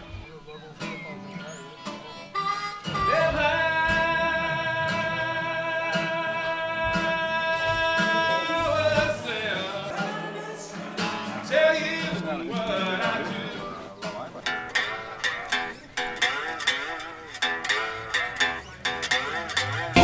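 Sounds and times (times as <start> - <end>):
music beat: 1.9 - 9.2, 14.4 - 20.0.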